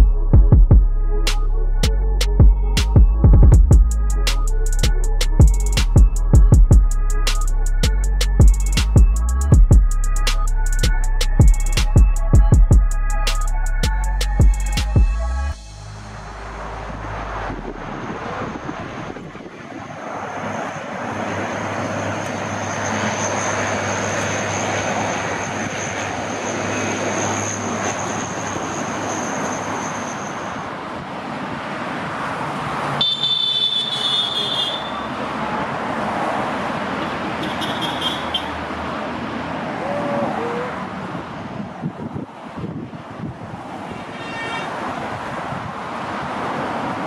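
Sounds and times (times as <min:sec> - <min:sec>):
cars rushing past: 0:15.2 - 0:47.0.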